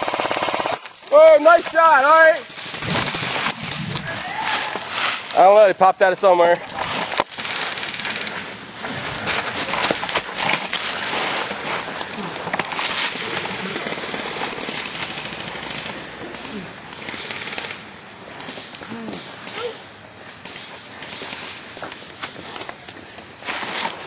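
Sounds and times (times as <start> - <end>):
airsoft guns automatic fire: 0.0 - 0.9, 17.0 - 17.8
dry leaves crackling: 0.8 - 18.4.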